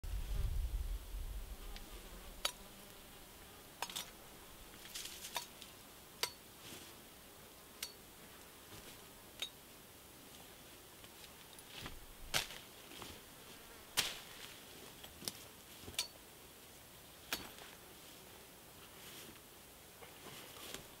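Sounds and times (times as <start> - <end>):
faint insect buzz: 0.1 - 21.0.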